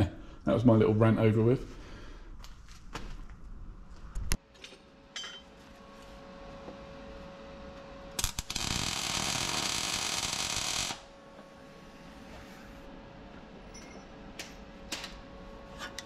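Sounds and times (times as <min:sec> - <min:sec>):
welder arc buzzing: 0:08.0 - 0:11.2
metal clinks and taps: 0:13.7 - 0:14.1.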